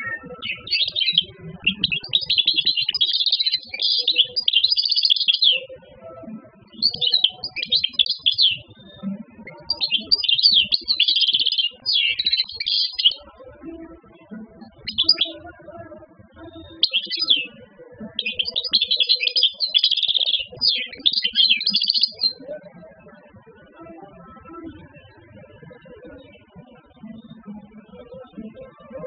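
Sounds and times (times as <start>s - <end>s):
goldfinch twittering song: 0.0s - 5.7s, 6.7s - 9.0s, 9.6s - 13.2s, 14.8s - 15.4s, 16.5s - 17.6s, 18.2s - 22.4s.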